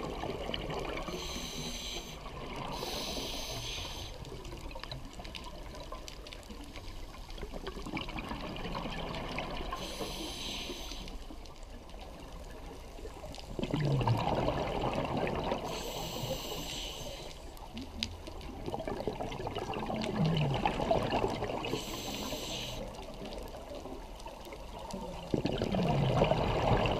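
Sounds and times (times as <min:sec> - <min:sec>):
regulator inhale hiss: 0:01.0 - 0:04.3, 0:09.7 - 0:11.3, 0:15.6 - 0:17.5, 0:21.6 - 0:23.0
exhaled bubbles rushing: 0:07.6 - 0:09.8, 0:13.6 - 0:15.7, 0:18.5 - 0:21.7, 0:25.3 - 0:26.9.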